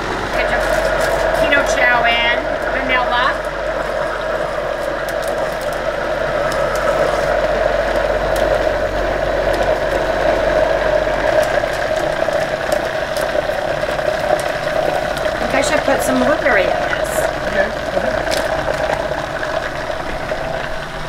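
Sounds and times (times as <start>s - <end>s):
blender motor running: 0.0s - 21.0s.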